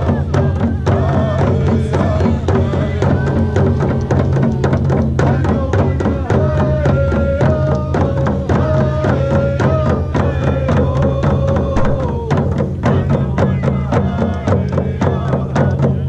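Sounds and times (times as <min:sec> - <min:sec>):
hand drums beating: 0:00.0 - 0:16.0.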